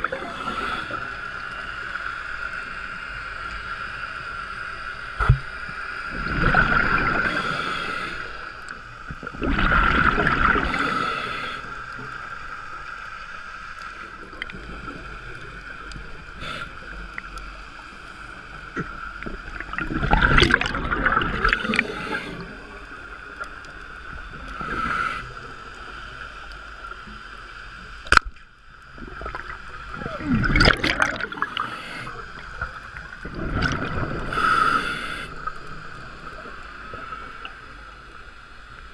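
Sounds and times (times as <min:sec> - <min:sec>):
regulator breathing hiss: 0:00.0 - 0:03.0, 0:07.0 - 0:08.8, 0:10.5 - 0:12.5, 0:16.1 - 0:18.4, 0:21.4 - 0:23.2, 0:24.3 - 0:26.9, 0:31.3 - 0:32.9, 0:34.2 - 0:38.5
exhaled bubbles gurgling: 0:06.1 - 0:08.4, 0:09.1 - 0:12.3, 0:14.0 - 0:26.2, 0:28.8 - 0:37.8.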